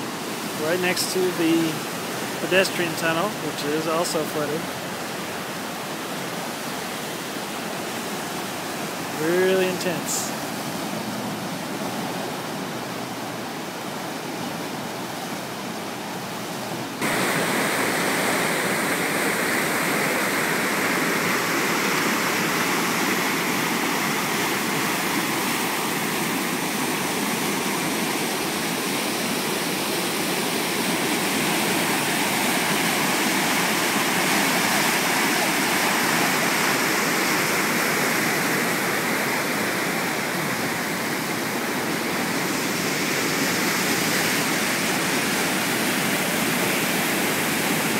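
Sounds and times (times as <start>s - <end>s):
river water rushing: 0.0s - 47.9s.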